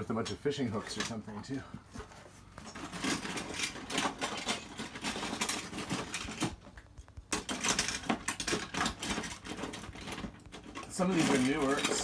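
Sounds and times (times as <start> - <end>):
hands rummaging through metal bits: 2.6 - 6.6, 7.3 - 12.0.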